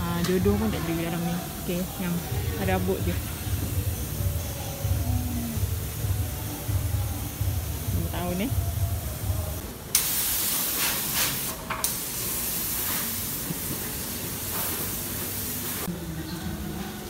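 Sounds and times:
hissing spray jet: 9.9 - 15.9.

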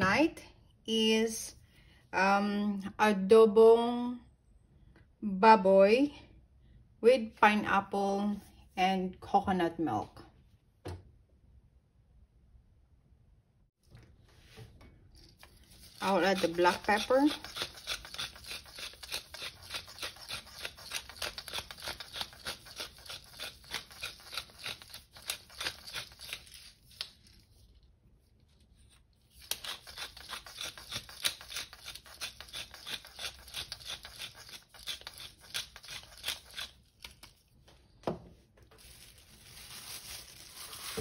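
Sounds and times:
pepper mill grinding: 15.2 - 27.4, 29.3 - 37.4.

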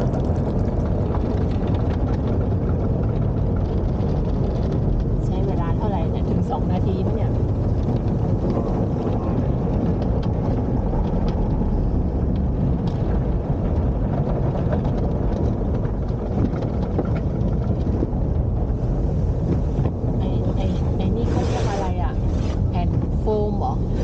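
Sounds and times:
car wash water spray and brushes: 18.2 - 24.0.

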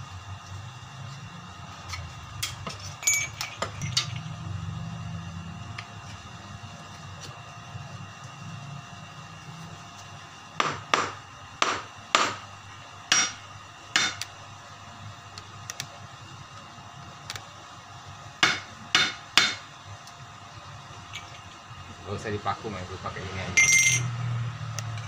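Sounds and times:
hammer strikes with metallic ring: 13.1 - 13.4.

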